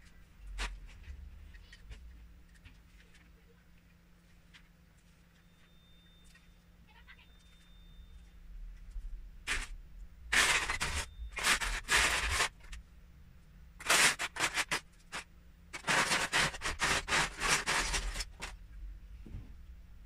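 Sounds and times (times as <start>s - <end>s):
plastic bricks clattering: 10.3s - 12.8s, 13.8s - 15.2s, 15.8s - 18.5s.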